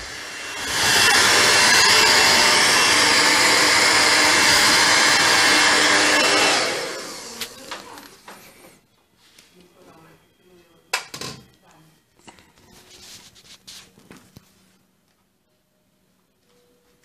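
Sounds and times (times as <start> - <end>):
hair dryer blowing: 0.0 - 8.0.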